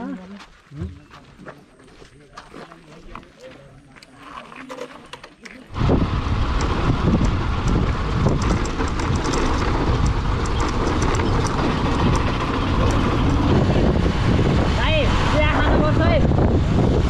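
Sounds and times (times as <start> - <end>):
gravel clicks: 0.4 - 14.2
motorcycle engine and tyre rumble: 2.8 - 17.0
wind on microphone: 5.7 - 17.0.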